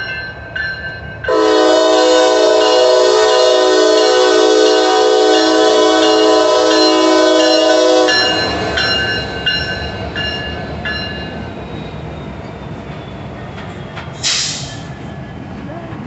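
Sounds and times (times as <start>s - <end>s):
crossing bell dinging: 0.0s - 15.4s
locomotives rumbling on rails: 0.0s - 16.0s
locomotive air horn chord: 1.3s - 8.4s.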